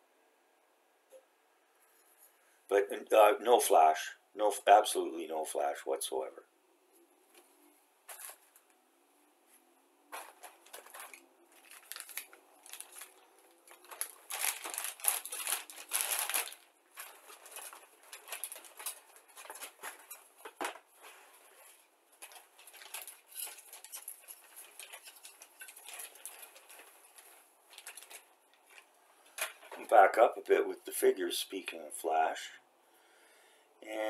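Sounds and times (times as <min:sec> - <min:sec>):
plastic bag crinkling: 0:08.0 - 0:08.7, 0:10.0 - 0:30.6.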